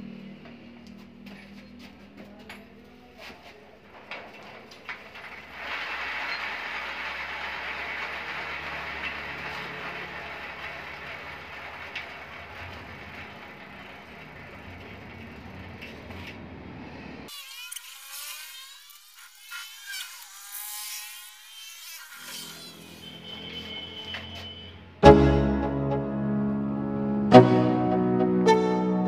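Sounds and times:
bicycle chain whirring rattle: 5.0 - 16.3.

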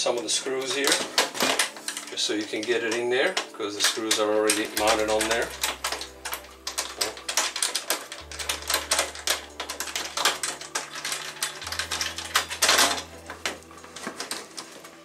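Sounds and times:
metal parts clicking and tapping: 0.0 - 15.0.

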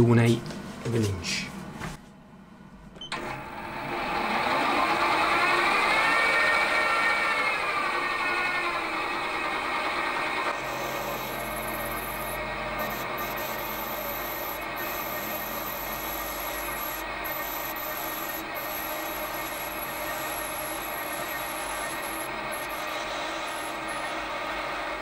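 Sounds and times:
metal lathe cutting: 3.6 - 25.0
thin high whine: 5.4 - 25.0.

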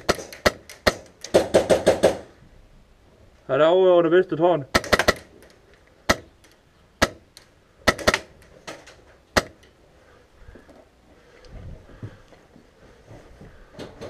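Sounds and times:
airsoft rifle shots: 0.0 - 2.3, 4.7 - 9.6.

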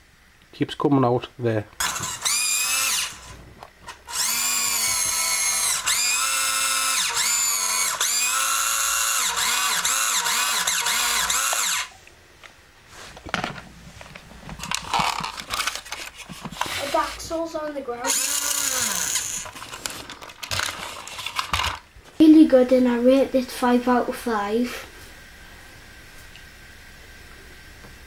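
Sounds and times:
toy truck electric motor whining: 1.8 - 12.0, 18.0 - 21.6.

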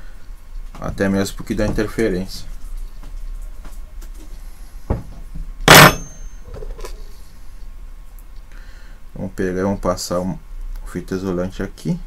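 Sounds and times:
steady low hum: 4.4 - 12.0.

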